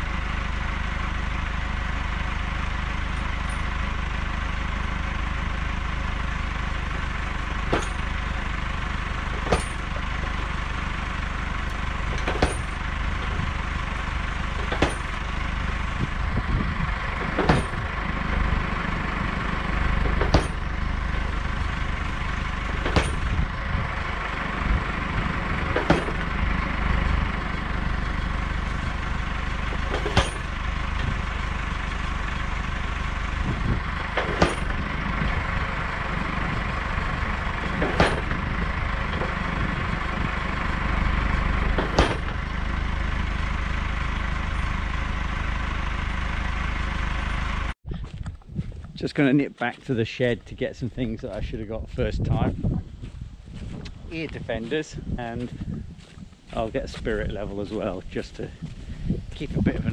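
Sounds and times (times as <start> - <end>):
tractor engine running: 0.0 - 59.9
post banger striking fence post: 6.6 - 16.2, 17.0 - 42.7.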